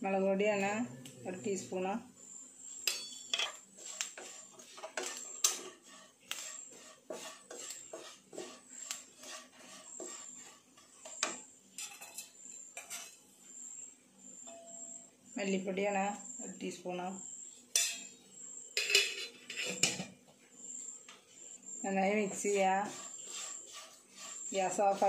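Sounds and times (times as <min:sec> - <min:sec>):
wooden spatula scraping a pan: 0:03.3 - 0:12.2, 0:12.8 - 0:13.2, 0:19.0 - 0:20.0, 0:22.0 - 0:25.0.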